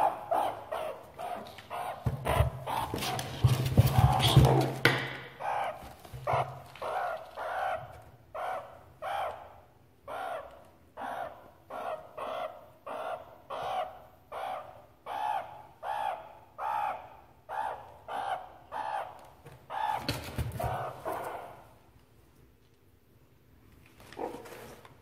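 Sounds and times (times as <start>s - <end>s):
meerkat calling: 0.0s - 21.8s
scratching rustle: 1.4s - 4.8s.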